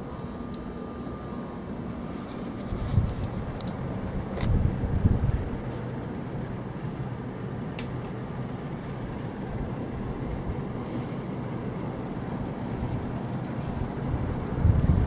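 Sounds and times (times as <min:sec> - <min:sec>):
ceiling fans whooshing: 0:00.0 - 0:15.0
wind buffeting microphone: 0:02.6 - 0:05.7, 0:12.8 - 0:15.0.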